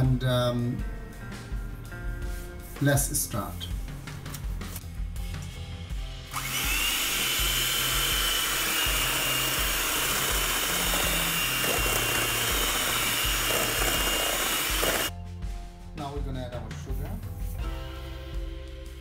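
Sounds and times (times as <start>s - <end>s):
background music with bass: 0.0s - 19.0s
electric hand mixer whining: 6.3s - 15.1s.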